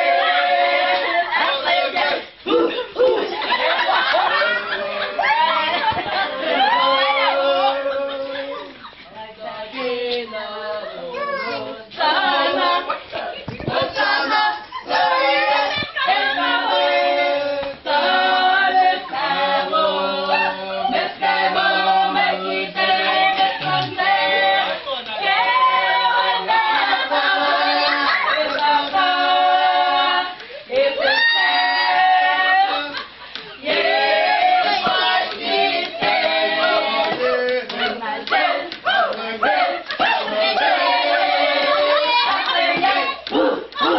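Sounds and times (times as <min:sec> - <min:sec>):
group singing a cappella: 0:00.0 - 0:43.9
hand claps: 0:37.0 - 0:39.2, 0:42.4 - 0:43.9.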